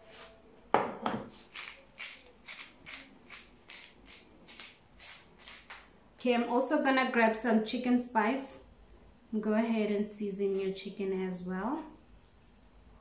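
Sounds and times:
pepper grinder grinding: 1.3s - 5.8s.

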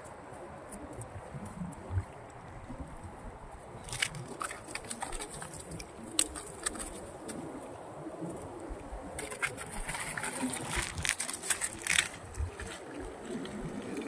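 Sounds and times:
hands handling fishing net: 3.8s - 7.4s, 9.1s - 14.0s.

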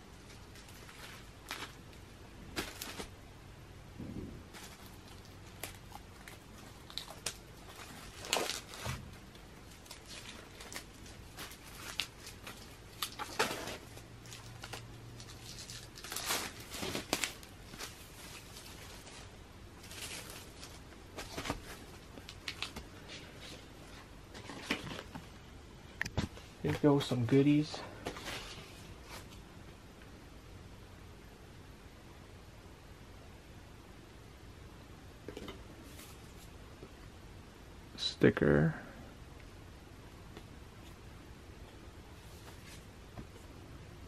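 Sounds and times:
hands handling book and packaging: 0.0s - 3.2s, 4.5s - 25.4s, 26.0s - 29.5s, 35.8s - 37.0s, 41.6s - 43.6s
plastic crinkling: 0.2s - 3.2s, 4.5s - 23.4s.

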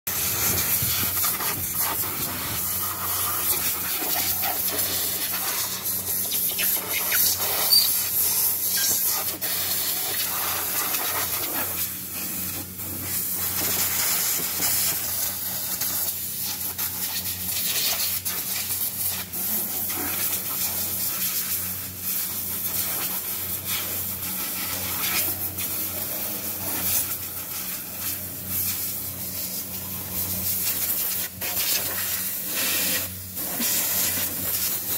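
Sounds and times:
steady low hum: 0.1s - 6.9s
compressed air blow gun hissing: 0.1s - 34.9s.

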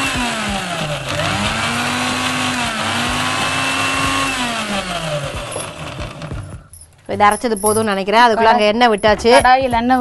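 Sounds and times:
mixer grinder motor whine: 0.0s - 6.6s.

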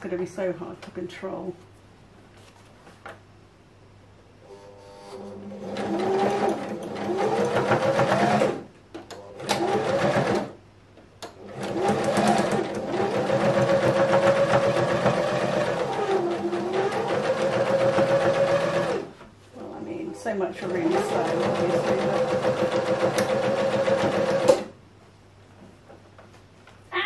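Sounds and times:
sewing machine stitching: 5.2s - 8.6s, 9.3s - 10.6s, 11.4s - 19.1s, 20.6s - 24.7s.

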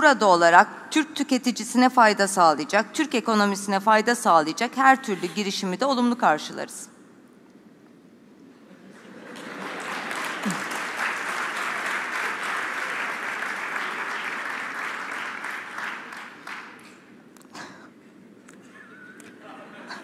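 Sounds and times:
audience applauding: 9.0s - 16.9s.

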